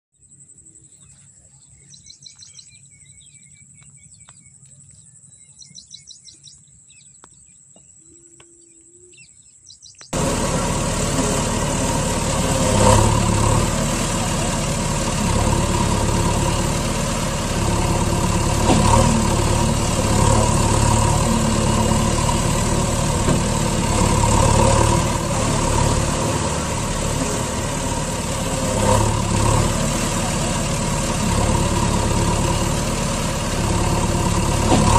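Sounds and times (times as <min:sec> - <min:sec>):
birds chirping: 0:00.2 - 0:34.7
truck engine idling: 0:10.1 - 0:34.9.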